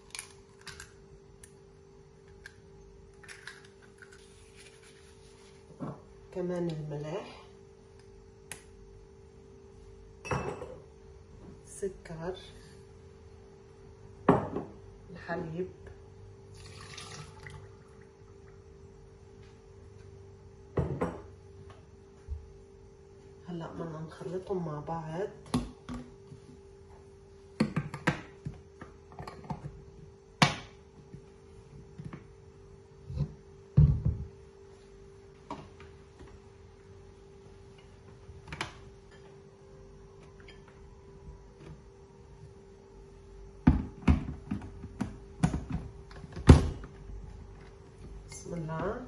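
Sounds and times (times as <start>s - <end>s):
faint steady hum: 0.0s - 49.0s
milk pouring and splashing: 16.5s - 18.2s.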